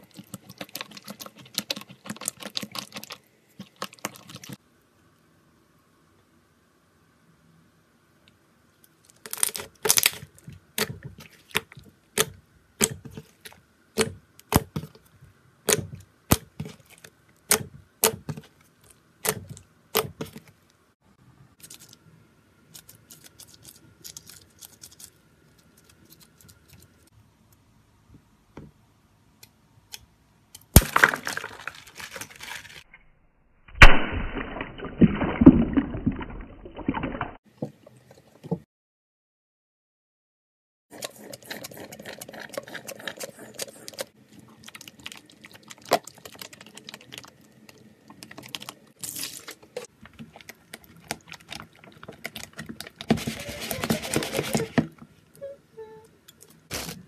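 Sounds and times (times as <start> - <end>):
stress ball cracking open: 30.6 - 32.8
liquid slime splashing: 33.8 - 37.4.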